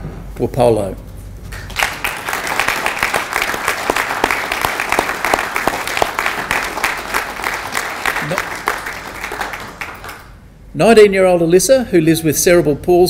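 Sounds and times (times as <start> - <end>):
audience applauding: 1.5 - 10.4.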